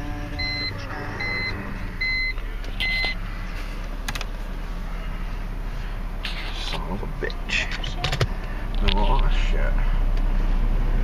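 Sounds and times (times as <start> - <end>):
car engine idling: 0.0 - 11.0
electronic warning beeps: 0.3 - 3.2.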